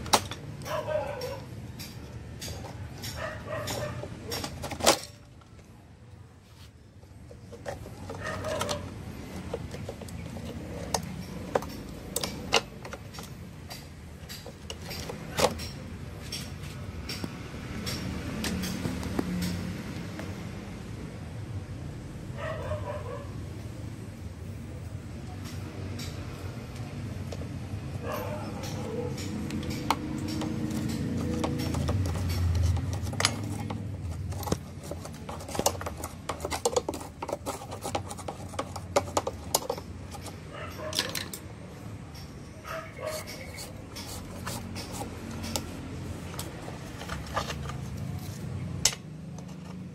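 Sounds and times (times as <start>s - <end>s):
plastic and metal parts clicking: 0.0s - 5.8s, 7.0s - 19.6s, 28.2s - 41.5s, 43.1s - 49.9s
screwdriver scraping plastic: 28.6s - 41.4s, 42.9s - 48.6s.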